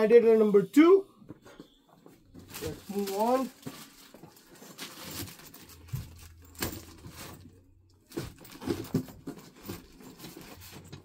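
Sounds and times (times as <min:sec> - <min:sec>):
plastic packaging crinkling: 0:02.4 - 0:07.6.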